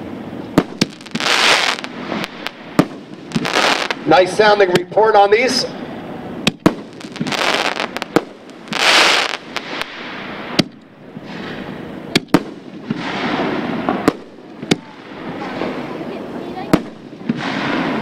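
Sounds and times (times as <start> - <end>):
firework sharp reports: 0.1 - 18.0
firework hiss: 0.6 - 4.3, 6.4 - 10.6.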